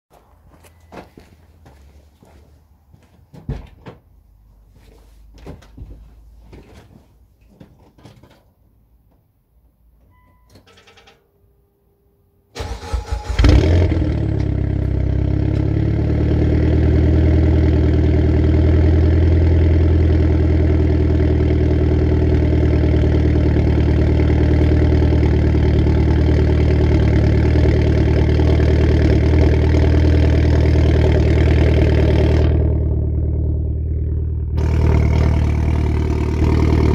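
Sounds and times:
car engine revving and idling: 13.2 - 36.9.

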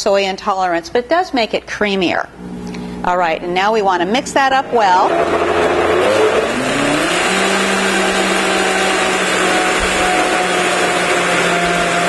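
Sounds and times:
blender motor running: 4.5 - 12.0.

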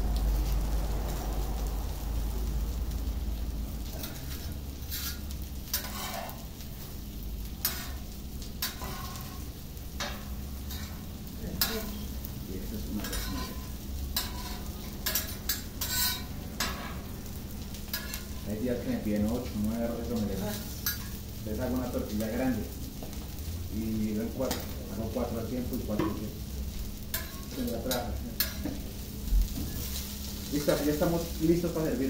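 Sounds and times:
low sizzle: 0.0 - 32.0
metal spatula scraping a griddle: 3.9 - 17.1, 17.8 - 18.5, 20.1 - 21.2, 26.9 - 31.4.

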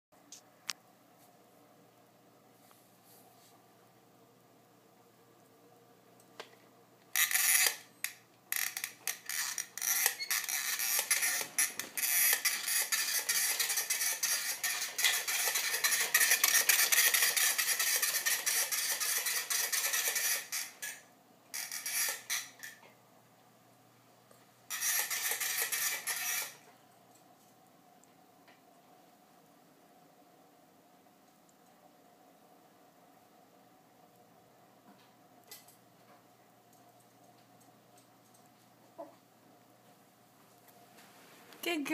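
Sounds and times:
pull-toy rattling and clattering: 8.6 - 21.0.

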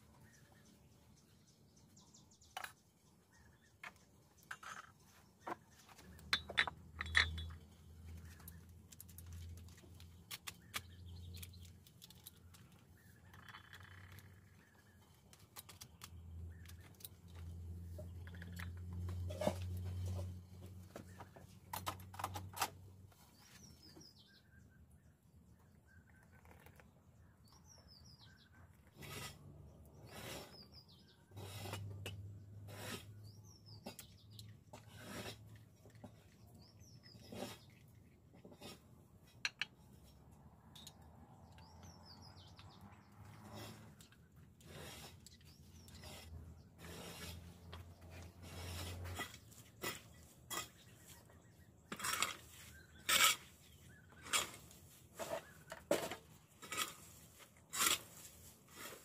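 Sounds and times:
birds chirping: 40.7 - 55.9.

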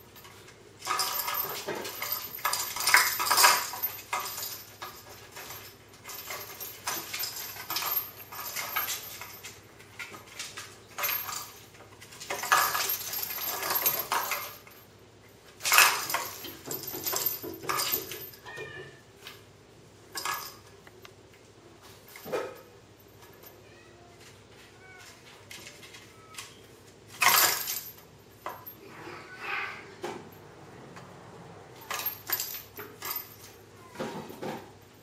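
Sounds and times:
toy balls clattering in box: 0.8 - 14.7, 15.6 - 18.4
kittens scuffling: 20.1 - 35.0.

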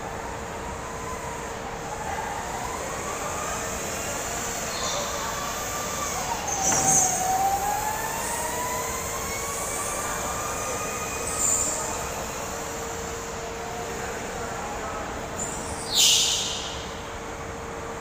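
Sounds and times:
knock: 6.7 - 7.1.

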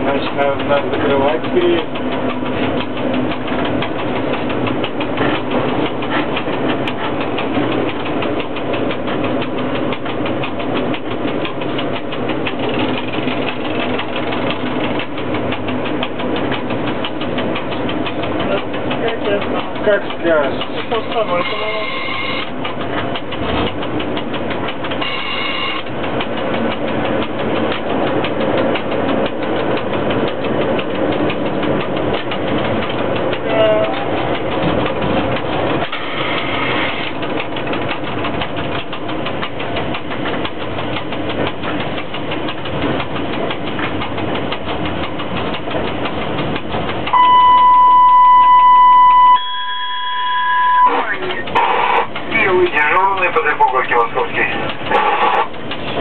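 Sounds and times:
train rumble and rattle: 0.0 - 56.0
high-pitched tone: 47.2 - 51.1.

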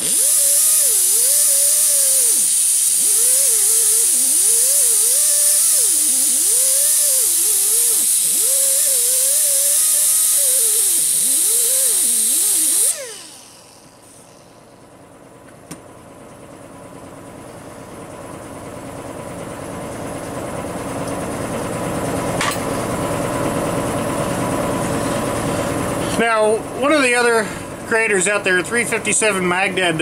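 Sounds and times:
air grinder hissing and whining: 0.0 - 14.9.

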